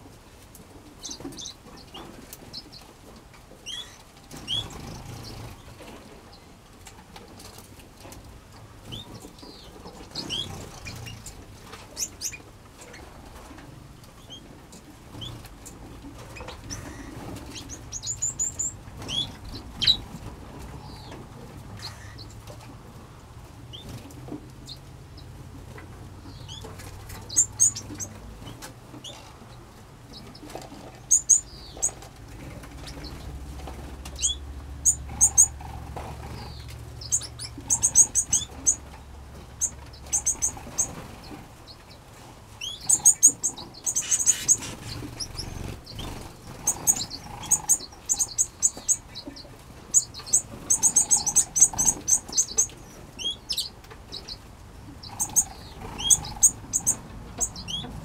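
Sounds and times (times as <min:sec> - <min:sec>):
finches chirping: 0:03.6 - 0:05.6, 0:08.9 - 0:13.1, 0:15.1 - 0:20.1, 0:26.2 - 0:29.3, 0:30.2 - 0:33.2, 0:34.1 - 0:41.4, 0:42.6 - 0:54.4, 0:55.0 - 0:57.9.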